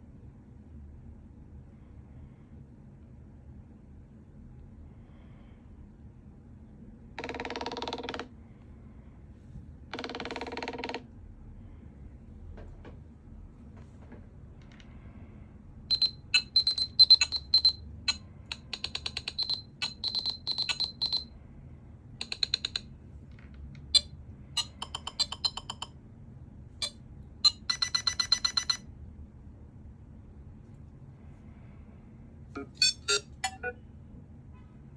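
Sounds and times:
fast electronic ticks: 0:15.9 - 0:21.2, 0:22.2 - 0:22.9, 0:24.0 - 0:26.0
high-pitched electronic clicks and beeps: 0:15.9 - 0:21.3, 0:24.0 - 0:26.0, 0:26.8 - 0:28.8, 0:32.6 - 0:33.8.

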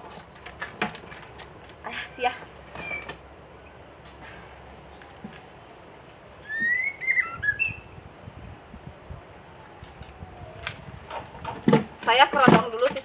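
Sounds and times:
bird whistling rising notes: 0:06.4 - 0:08.0.

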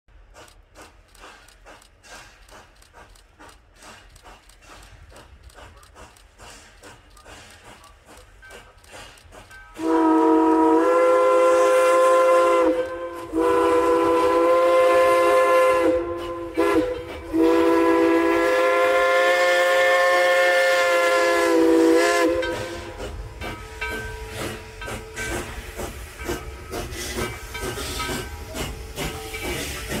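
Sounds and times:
steam locomotive whistle: 0:09.7 - 0:23.2.

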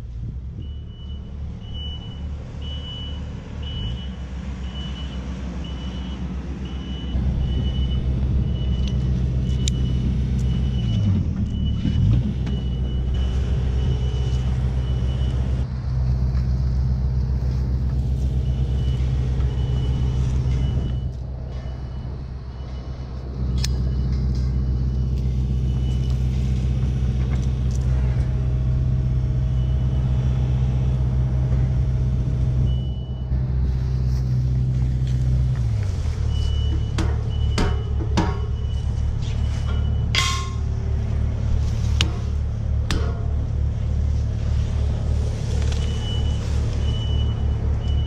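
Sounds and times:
diesel engine running: 0:00.0 - 0:48.0.

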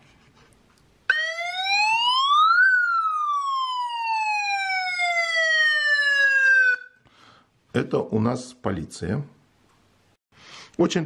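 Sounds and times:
electronic police siren tone: 0:01.1 - 0:07.0.

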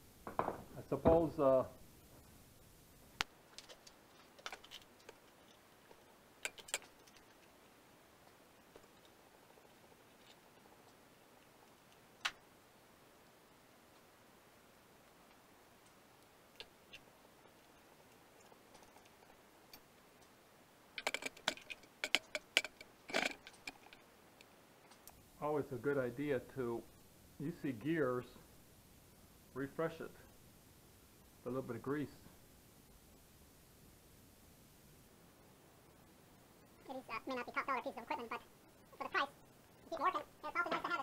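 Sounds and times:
tools clicking and tapping: 0:06.4 - 0:07.4, 0:21.0 - 0:24.0.

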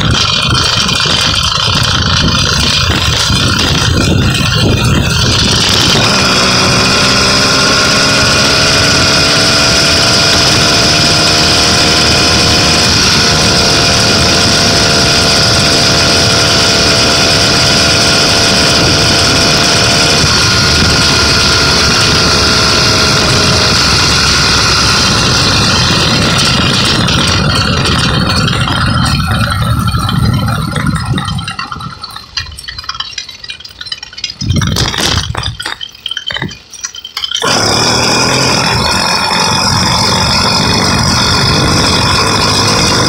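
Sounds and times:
motorized bicycle engine running: 0:00.0 - 0:43.0.

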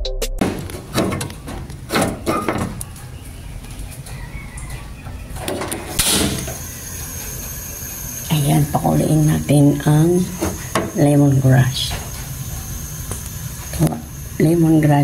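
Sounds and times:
gas burner igniting burst: 0:05.8 - 0:15.0.

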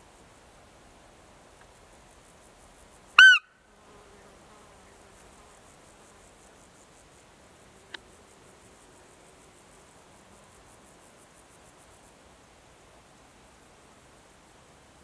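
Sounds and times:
insects chirping: 0:00.0 - 0:15.0
deer high-pitched squeak call: 0:03.2 - 0:03.5.

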